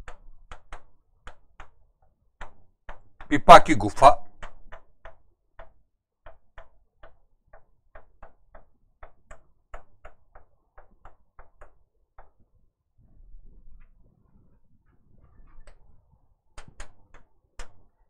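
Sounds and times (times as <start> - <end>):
pen tapping on board: 0.0 - 3.3, 4.3 - 12.4, 16.6 - 18.0.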